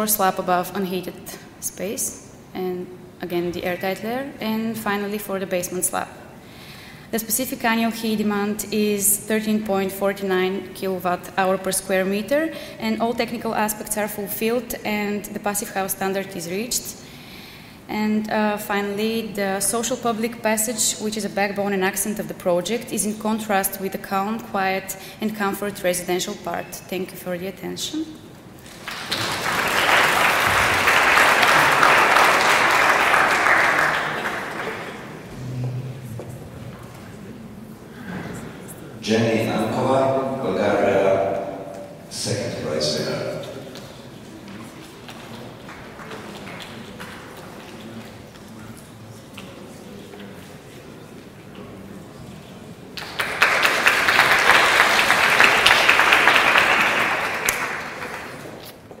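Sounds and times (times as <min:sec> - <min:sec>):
audience applauding: 0:28.6 - 0:35.3, 0:53.0 - 0:58.6.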